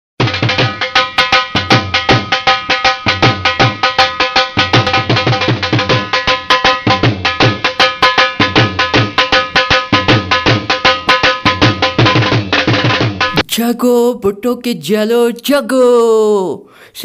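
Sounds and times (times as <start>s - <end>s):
dhol drumming: 0.2s - 13.8s.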